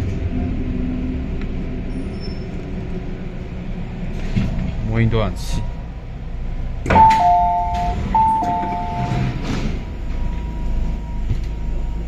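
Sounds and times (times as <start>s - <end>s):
train car background hum: 0.0s - 12.0s
electronic two-note chime: 7.0s - 9.1s.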